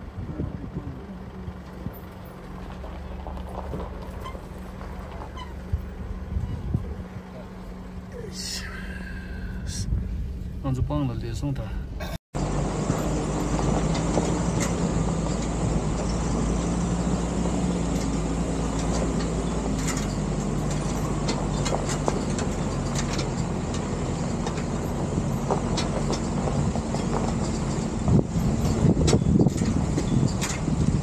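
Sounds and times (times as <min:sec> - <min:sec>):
car engine running: 0:00.0 - 0:10.8, 0:11.5 - 0:31.0
tyres rolling over gravel: 0:01.2 - 0:06.1, 0:12.4 - 0:31.0.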